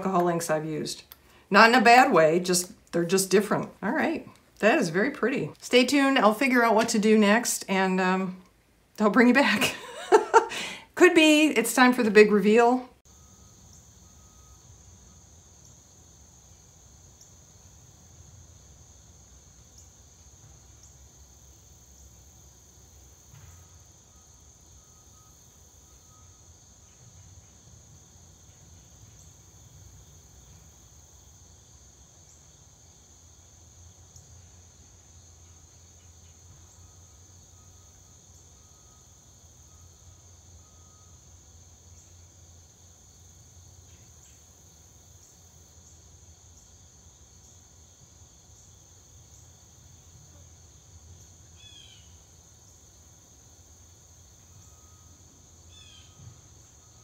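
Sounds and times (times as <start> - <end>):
high-pitched insect chorus: 13.1 - 57.0.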